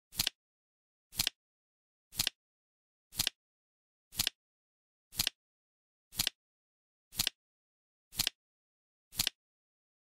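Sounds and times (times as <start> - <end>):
flip clock cards clacking: 2.1 - 2.4, 7.2 - 7.4, 8.2 - 8.4.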